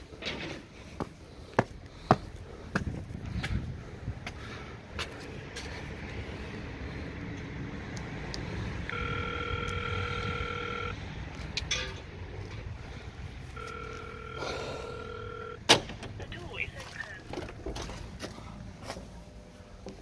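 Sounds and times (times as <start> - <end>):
intercom electronic call tone: 8.9 - 11.0, 13.5 - 15.6.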